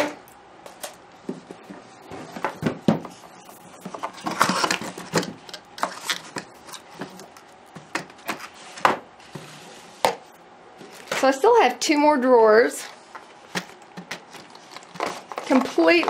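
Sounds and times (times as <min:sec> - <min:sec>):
cardboard scraping and sliding: 0:08.2 - 0:10.2.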